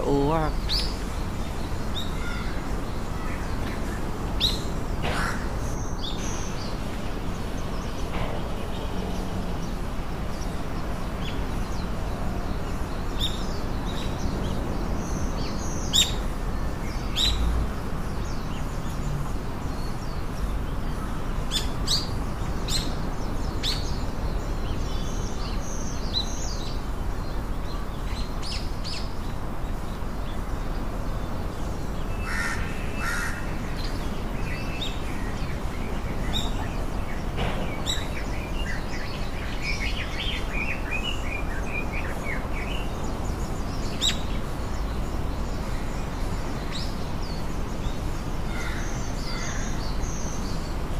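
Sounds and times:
birds chirping: 0.0s - 50.9s
steady background noise: 0.0s - 50.9s
crow cawing: 32.2s - 33.4s.

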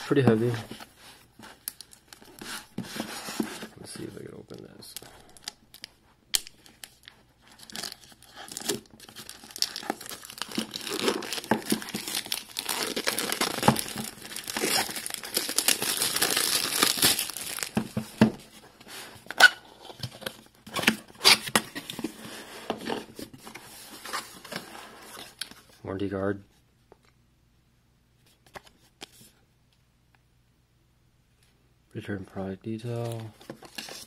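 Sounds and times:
cardboard tearing and crinkling: 7.5s - 22.2s.

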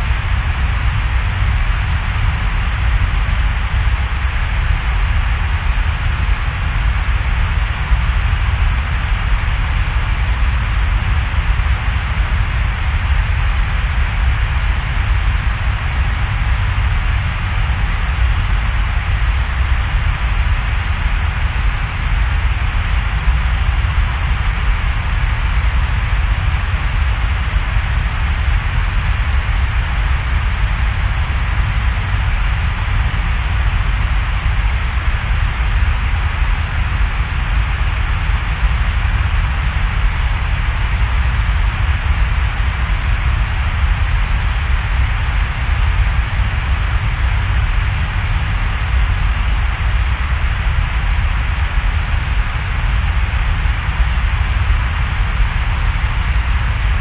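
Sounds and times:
steady hiss: 0.0s - 57.0s.

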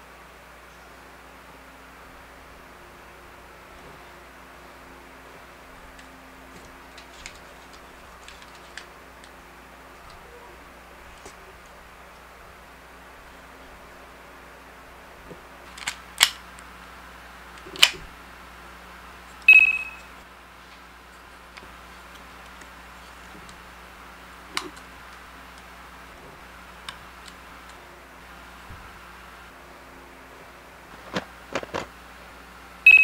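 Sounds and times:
steady low hum: 0.0s - 33.0s
toy parts clicking: 5.9s - 9.4s, 15.7s - 16.4s, 17.6s - 18.0s
short ringing tone: 19.5s - 20.2s.

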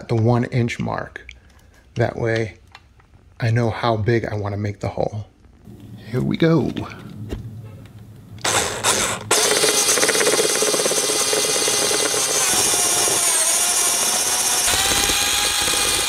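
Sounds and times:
power drill boring through plastic: 8.4s - 16.0s.

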